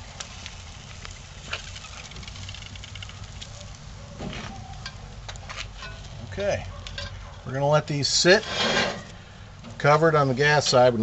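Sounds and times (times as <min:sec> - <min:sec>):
meat sizzling and popping in oil: 0:00.0 - 0:04.0.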